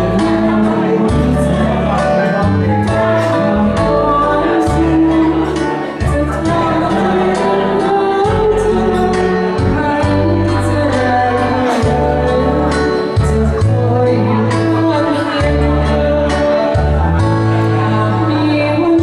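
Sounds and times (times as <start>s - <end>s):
karaoke backing track: 0.0s - 19.0s
woman singing into a microphone: 0.0s - 19.0s.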